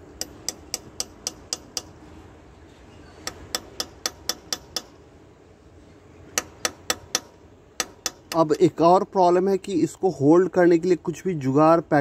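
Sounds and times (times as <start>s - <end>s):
hammer tapping metal: 0.2s - 2.0s, 3.2s - 5.0s, 6.4s - 8.6s.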